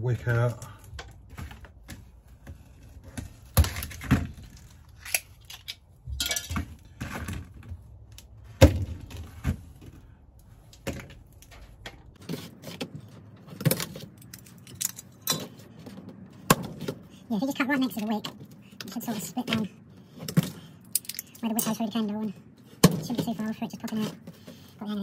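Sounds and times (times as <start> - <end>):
wax crunching and scraping: 0.2 - 14.7.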